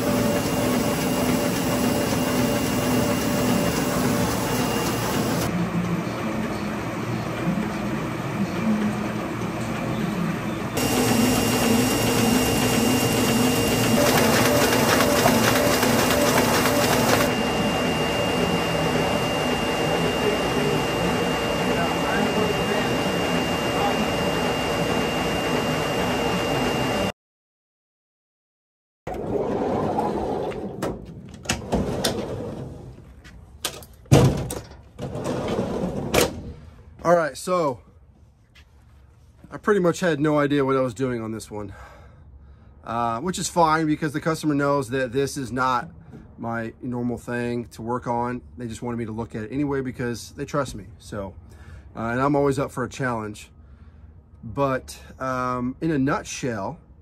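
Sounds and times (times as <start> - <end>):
printing press humming and whining: 0.0 - 27.1.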